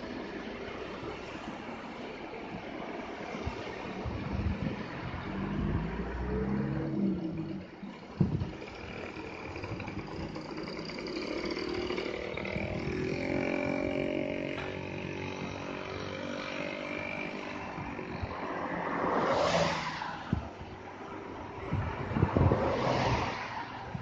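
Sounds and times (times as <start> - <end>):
excavator diesel engine running: 5.3 - 16.9.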